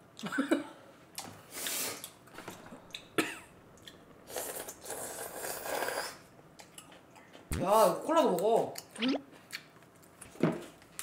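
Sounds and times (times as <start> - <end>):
person slurping food: 4.3 - 6.3.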